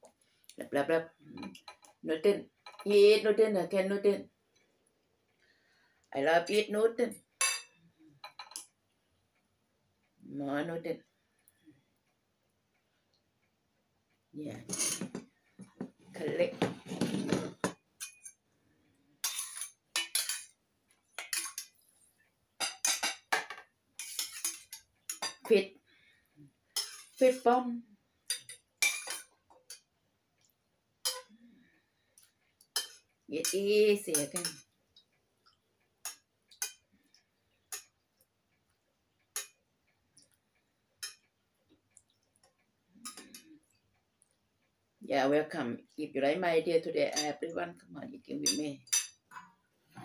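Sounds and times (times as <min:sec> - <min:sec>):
metal spoon clinking on pot: 0:07.4 - 0:08.7, 0:17.7 - 0:18.4, 0:19.2 - 0:20.5, 0:21.2 - 0:21.8, 0:22.6 - 0:25.5, 0:26.8 - 0:27.2, 0:28.3 - 0:29.9, 0:31.0 - 0:31.3, 0:32.7 - 0:34.7, 0:36.0 - 0:36.8, 0:47.1 - 0:47.4, 0:48.4 - 0:49.5
metal spoon scraping saucepan: 0:14.6 - 0:15.2, 0:16.2 - 0:18.4, 0:19.2 - 0:20.5, 0:21.2 - 0:21.8, 0:24.0 - 0:25.5, 0:26.8 - 0:27.3, 0:31.0 - 0:31.3, 0:32.8 - 0:34.7, 0:47.1 - 0:47.5.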